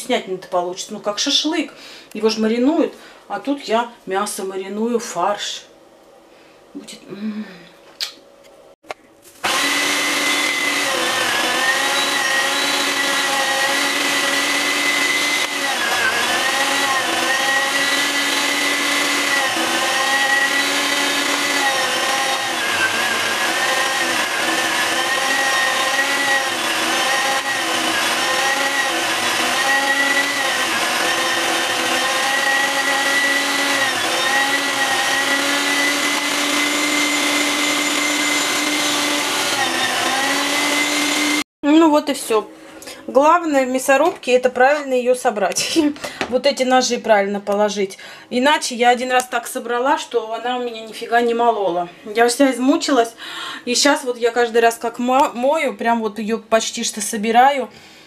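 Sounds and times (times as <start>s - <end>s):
electric meat grinder whine: 9.4s - 41.5s.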